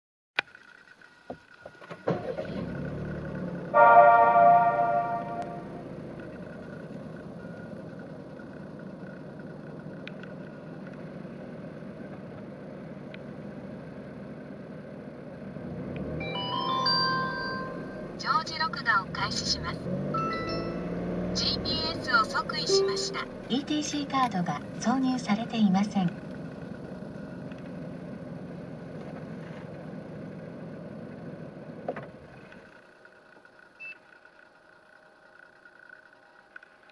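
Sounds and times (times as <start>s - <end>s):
car engine idling: 0.5s - 36.9s
short high beep: 3.8s - 5.8s, 16.2s - 18.0s, 22.6s - 23.4s.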